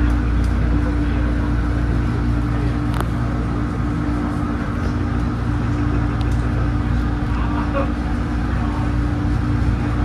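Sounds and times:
constant hum: 0.0 - 10.0
train wheels rumbling on rails: 0.0 - 10.0.

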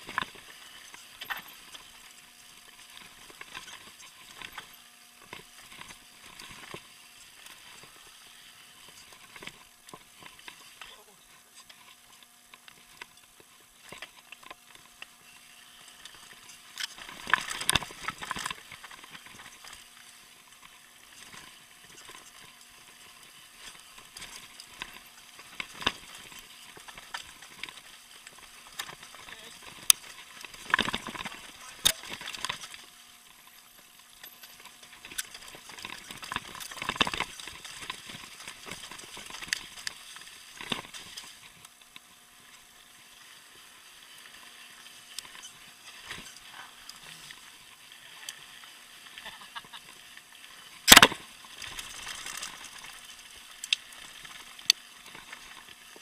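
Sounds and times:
bike rattling: 0.0 - 8.0, 15.9 - 41.6, 45.2 - 47.1, 50.8 - 56.0.

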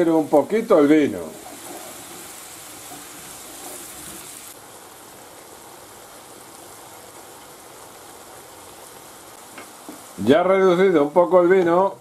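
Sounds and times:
wine sizzling in a frying pan: 0.0 - 12.0
wooden spoon stirring: 1.2 - 4.5.

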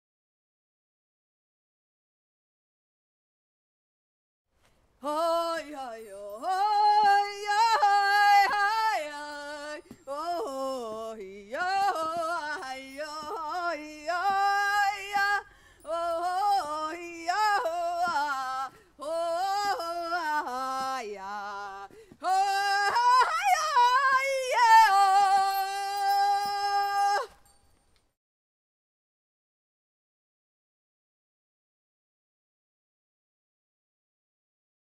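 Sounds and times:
person singing unaccompanied: 5.0 - 27.4.

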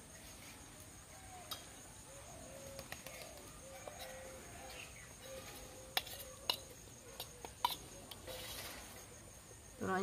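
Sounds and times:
faint insect drone: 0.0 - 10.0
bird calling softly: 1.0 - 8.8
metal spoon clinking steel bowl: 6.0 - 8.6.

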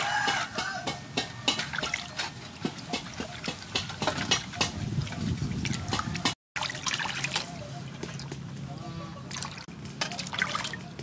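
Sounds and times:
water splashing in metal basin: 1.4 - 8.4, 9.3 - 11.0.

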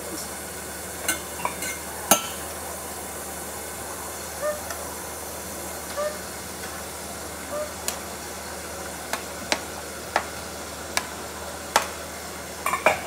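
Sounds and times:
steaming pot hiss: 0.0 - 13.0
metal utensil clinking on pot: 1.1 - 2.4.

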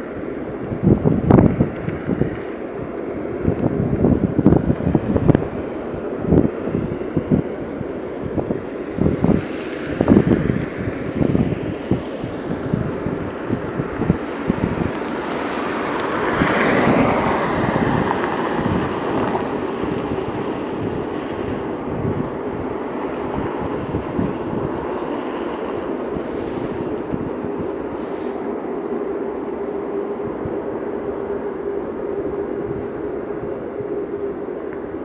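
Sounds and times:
jet engines rumbling: 0.0 - 35.0
wind buffeting microphone: 0.0 - 35.0
steady hum: 19.6 - 35.0.

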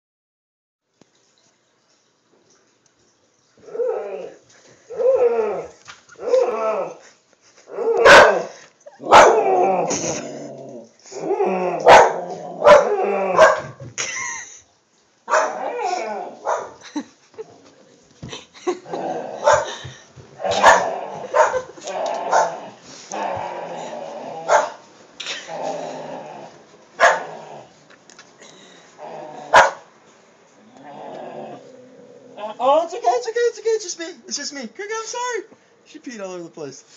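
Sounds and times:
dog yowling and barking: 3.6 - 7.0, 7.7 - 10.2, 11.2 - 13.8, 15.3 - 16.8, 19.2 - 19.7, 20.4 - 23.4, 24.4 - 24.8, 27.0 - 27.4, 29.5 - 29.9
dog barking: 8.0 - 9.4, 11.8 - 13.8, 15.3 - 15.6, 16.4 - 16.8, 19.4 - 19.7, 20.5 - 21.7, 22.3 - 22.6, 24.5 - 24.8, 27.0 - 27.3, 29.5 - 29.9.

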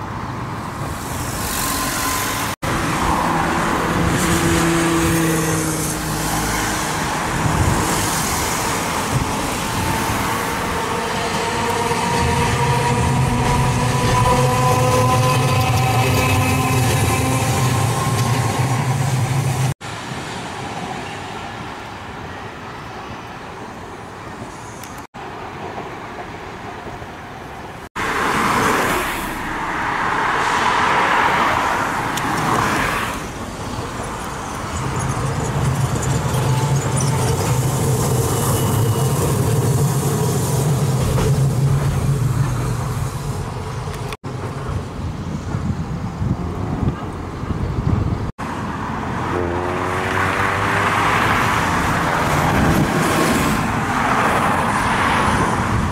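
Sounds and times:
cars and streetcars passing: 0.0 - 55.9.

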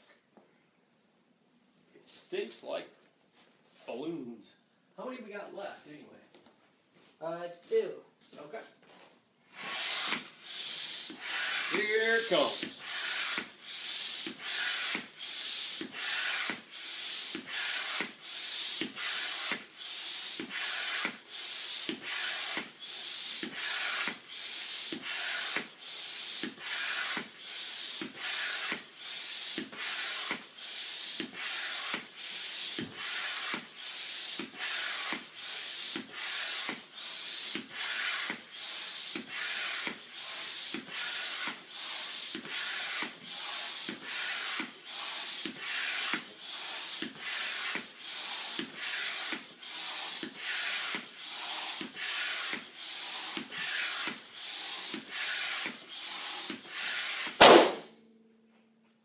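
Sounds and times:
hand air pump whooshing: 9.5 - 57.8.

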